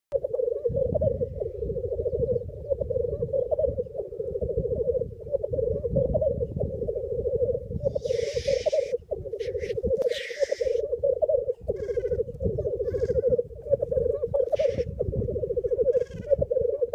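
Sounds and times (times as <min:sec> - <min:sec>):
grouse bubbling cooing song: 0:00.1 - 0:16.9.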